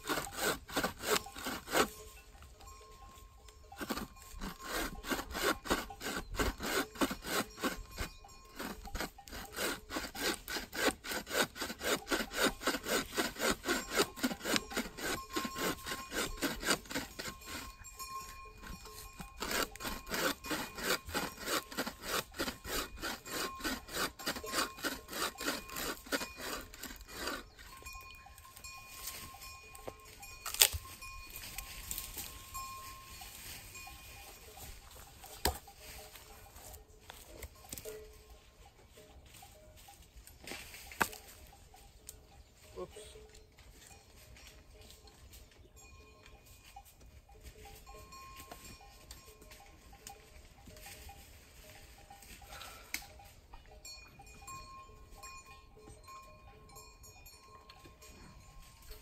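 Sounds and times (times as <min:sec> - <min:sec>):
hand saw cutting wood: 0:00.0 - 0:02.2, 0:03.7 - 0:37.9, 0:40.4 - 0:41.4.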